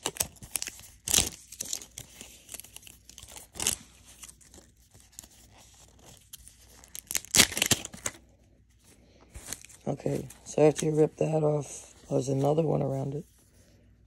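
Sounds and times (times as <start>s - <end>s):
wrapper ripping: 0.0s - 8.3s
wrapper crinkling: 0.0s - 13.6s.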